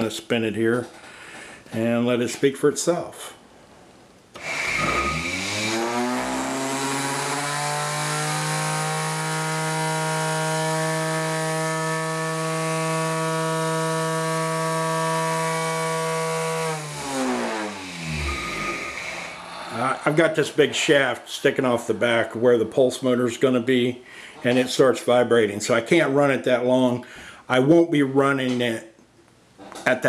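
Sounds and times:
router motor whine: 4.4s - 20.1s.

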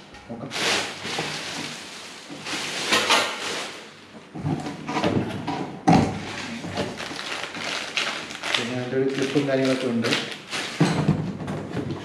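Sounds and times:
packaging rustling and scraping: 0.5s - 5.3s, 6.2s - 11.0s.

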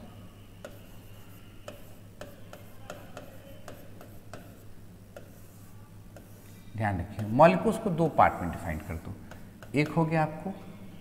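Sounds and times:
low electrical hum: 0.0s - 11.0s
pen tapping on writing board: 1.6s - 4.6s.

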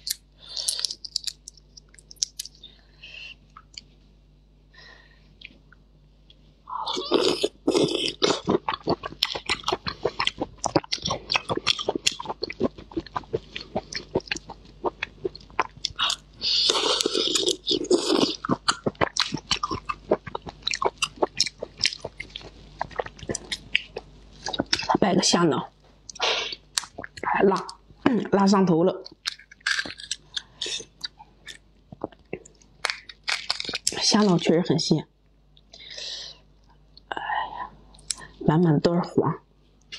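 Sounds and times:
wet chewing and crunching: 0.0s - 2.6s, 7.0s - 25.0s, 26.0s - 27.8s, 29.0s - 34.4s.

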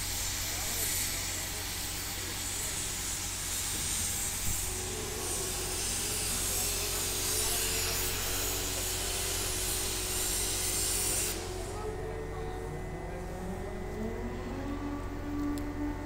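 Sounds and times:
machinery hiss: 0.0s - 11.8s
steady machine whine: 0.0s - 16.0s
low hum: 11.4s - 16.0s.

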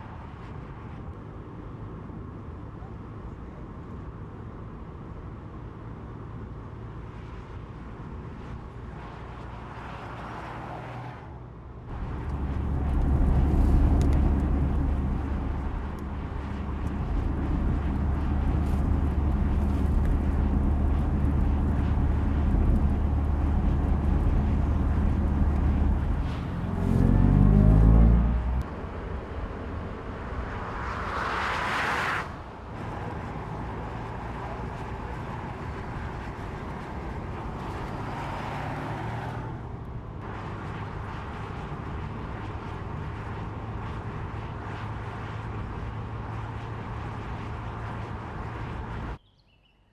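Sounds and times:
tyre and road noise: 0.0s - 49.6s
rising tone: 11.9s - 28.7s
electric car humming: 11.9s - 29.6s
rush of noise: 11.9s - 39.6s.

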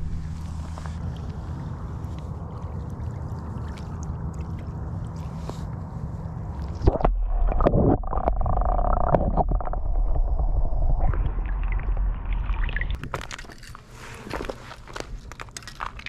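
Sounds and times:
water splashing: 0.0s - 5.6s
muffled underwater sloshing: 0.0s - 15.3s.

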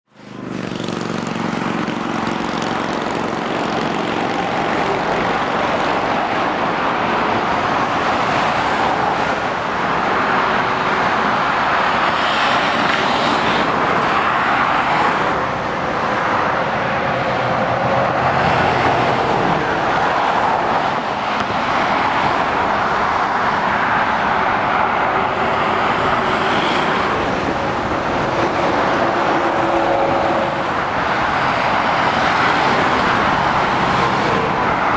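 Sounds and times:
tyre noise of passing traffic: 0.0s - 34.9s
diesel engines running: 0.1s - 34.9s.

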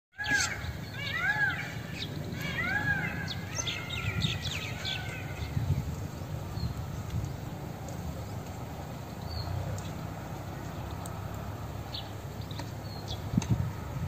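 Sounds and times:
birds calling: 0.1s - 13.4s
high bird chirps: 0.2s - 5.6s.

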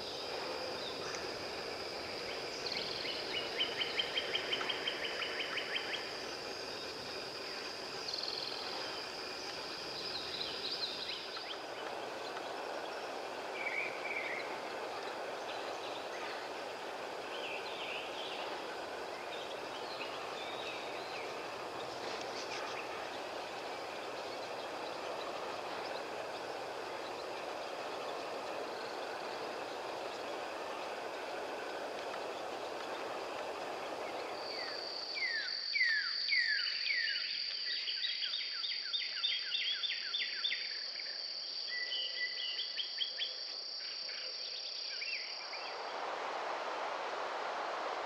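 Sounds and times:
rushing wind: 0.0s - 35.3s, 45.4s - 48.0s
high insect drone: 0.0s - 38.0s, 38.9s - 48.0s.

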